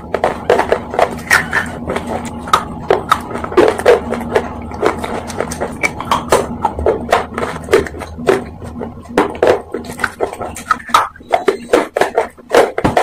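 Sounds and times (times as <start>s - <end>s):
person chewing crunchy food: 0.0s - 13.0s.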